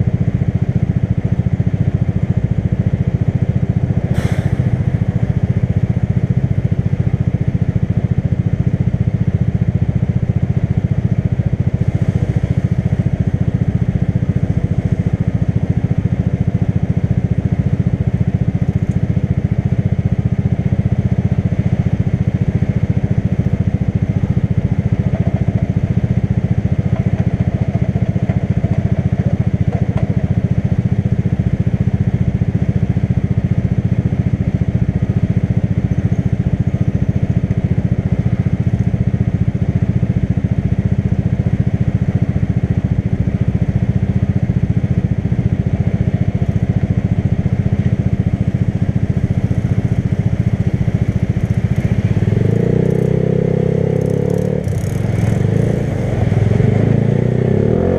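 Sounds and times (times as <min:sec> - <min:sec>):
motorcycle engine running: 0:00.0 - 0:57.9.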